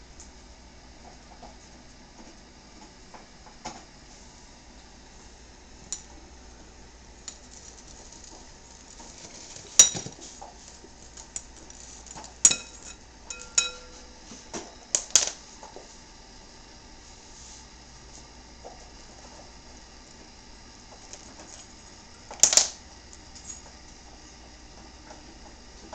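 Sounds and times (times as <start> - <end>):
glass bowl clinking: 12.5 - 14.2.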